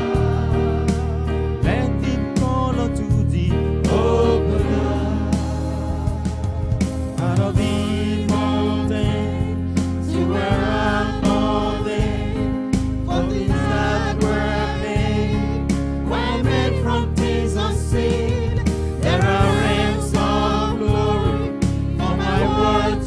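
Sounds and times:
gospel choir singing: 0:00.0 - 0:02.1, 0:03.7 - 0:23.0
keyboard accompaniment: 0:00.0 - 0:23.0
sustained bass: 0:00.0 - 0:23.0.

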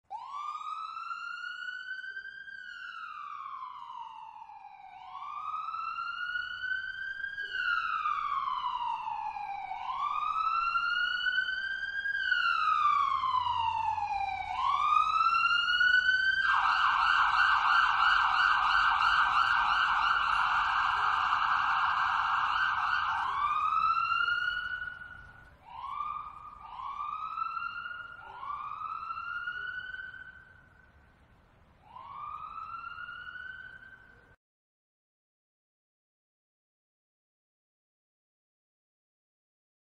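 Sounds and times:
ambulance siren wailing and yelping: 0:00.1 - 0:30.6, 0:31.8 - 0:34.3.

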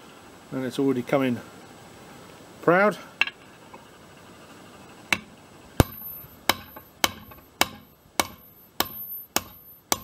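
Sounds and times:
hammer strikes on metal bolt: 0:05.1 - 0:10.0.

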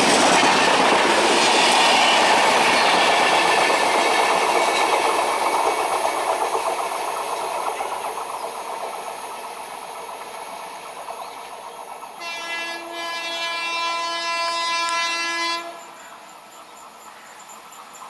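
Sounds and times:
train running on rails: 0:00.0 - 0:18.0
locomotive horn blast: 0:12.2 - 0:16.0.

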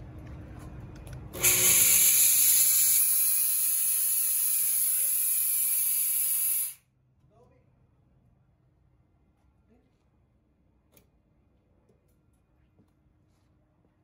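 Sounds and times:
fog machine hissing: 0:01.4 - 0:06.8.

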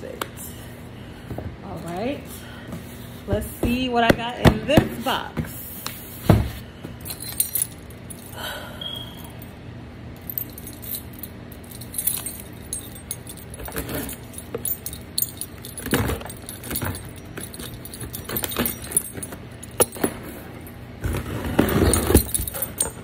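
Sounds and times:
keys jangling: 0:07.0 - 0:08.5, 0:10.2 - 0:20.8, 0:21.6 - 0:23.0
key dragged through packing tape: 0:21.1 - 0:23.0.

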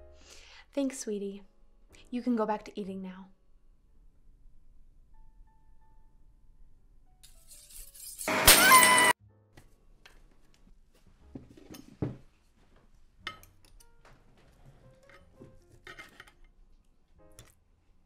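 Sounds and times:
glass bottle smashing: 0:07.6 - 0:09.1
cutlery clinking on plate: 0:13.3 - 0:13.9, 0:15.0 - 0:16.5.

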